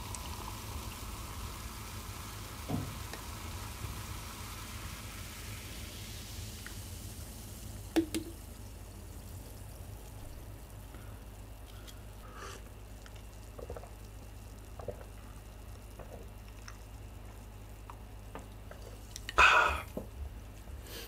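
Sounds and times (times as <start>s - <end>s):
cola pouring into glass: 0.0s - 10.8s, 11.9s - 20.0s
fizzy hiss: 0.0s - 20.2s
person swallowing: 19.3s - 20.0s.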